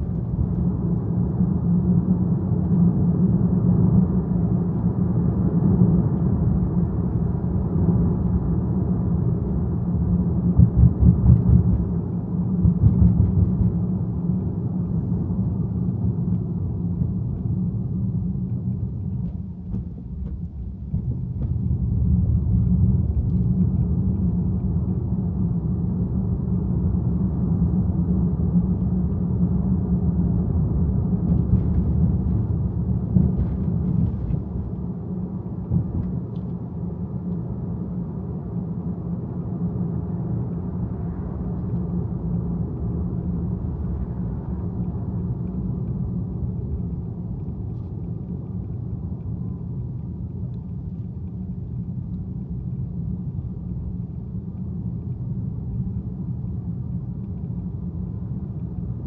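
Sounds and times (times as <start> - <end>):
car road and engine noise: 0.0 - 59.0.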